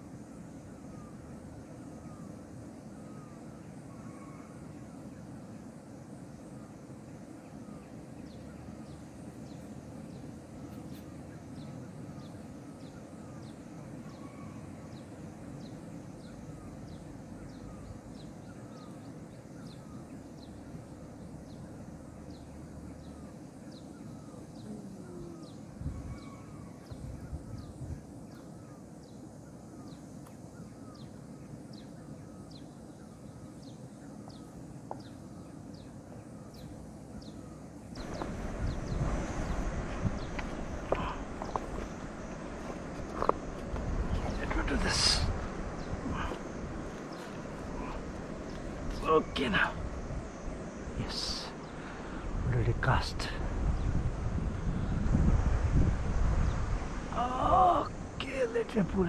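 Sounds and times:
river flowing: 0:37.6 - 0:52.4.

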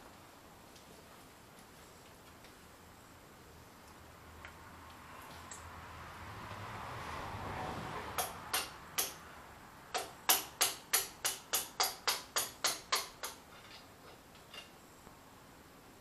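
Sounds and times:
hammer striking steel: 0:08.2 - 0:09.2, 0:09.9 - 0:13.4.

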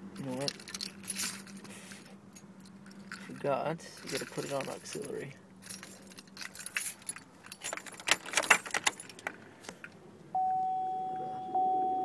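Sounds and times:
keys jangling and clicking: 0:00.2 - 0:09.4
car warning chime: 0:10.3 - 0:12.0.

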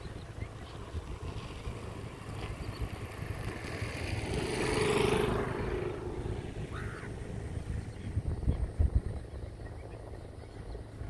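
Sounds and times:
vehicle engine passing by: 0:00.0 - 0:08.6
steady low rumble: 0:00.0 - 0:11.0.

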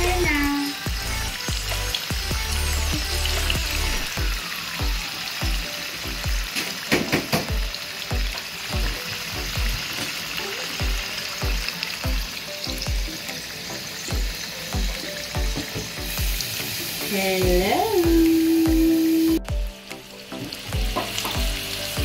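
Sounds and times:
background music with low beat: 0:00.0 - 0:04.4, 0:05.5 - 0:10.2, 0:10.8 - 0:22.0
vegetables sizzling in hot oil: 0:00.0 - 0:22.0.

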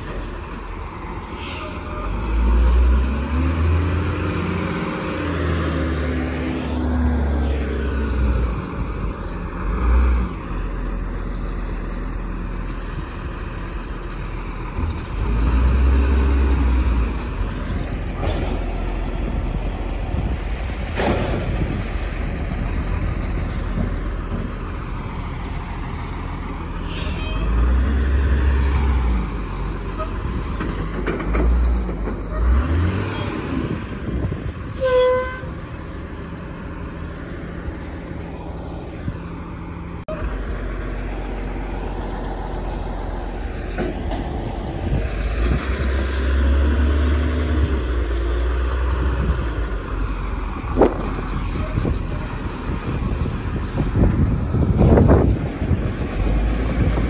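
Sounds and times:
garbage truck diesel engine revving: 0:01.8 - 0:34.5, 0:39.4 - 0:57.0.

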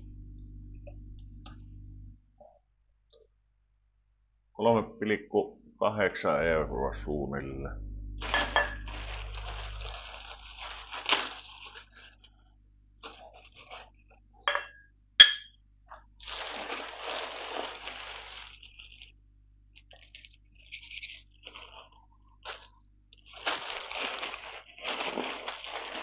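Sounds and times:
plastic packaging crinkling: 0:08.0 - 0:14.2, 0:15.9 - 0:26.0.

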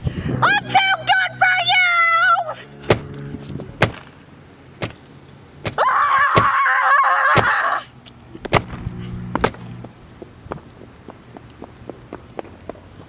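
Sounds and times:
person screaming: 0:05.8 - 0:07.9.

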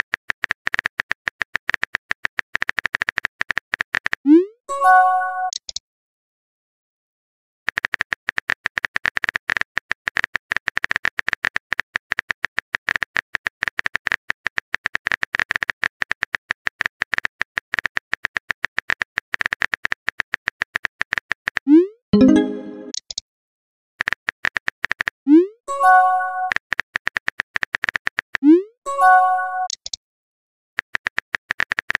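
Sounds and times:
keyboard typing clicks: 0:05.4 - 0:05.8, 0:29.4 - 0:30.0.

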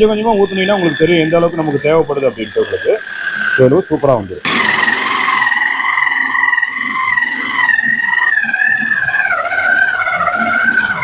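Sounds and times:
food processor motor whining: 0:03.2 - 0:11.0.

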